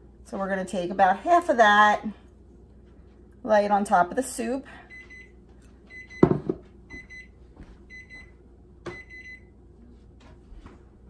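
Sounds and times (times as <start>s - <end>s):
kitchen timer beeping: 5.9s - 6.3s, 8.9s - 9.5s.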